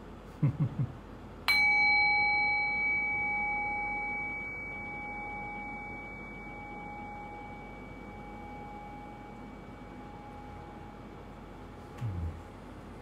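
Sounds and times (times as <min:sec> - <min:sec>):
meditation bell ringing: 0:01.5 - 0:11.3.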